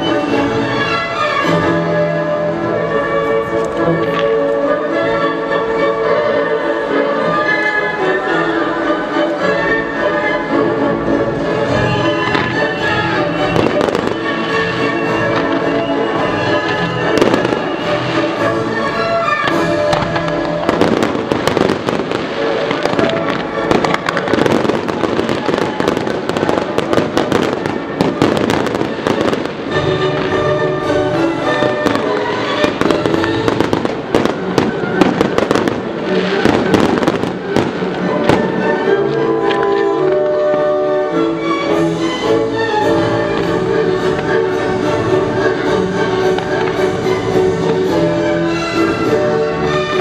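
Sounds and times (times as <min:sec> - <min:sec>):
music: 0:00.0 - 0:50.0
fireworks bangs and crackles: 0:11.4 - 0:50.0.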